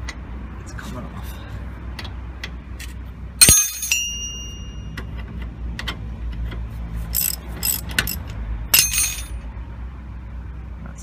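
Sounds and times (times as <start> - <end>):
sharp metallic clank: 3.4 - 5.0, 7.2 - 9.4
socket spanner clicking: 7.2 - 9.3.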